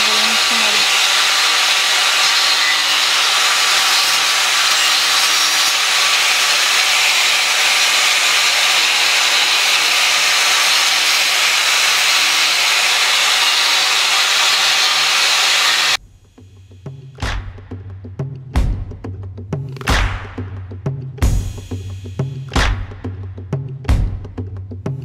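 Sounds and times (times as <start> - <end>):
angle grinder grinding wood: 0.0 - 16.0.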